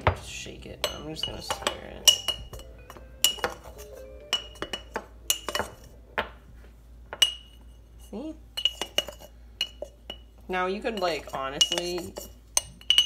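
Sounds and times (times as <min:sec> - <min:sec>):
metal spoon clinking in glass jar: 0:00.8 - 0:05.9, 0:08.6 - 0:10.2, 0:11.0 - 0:13.0.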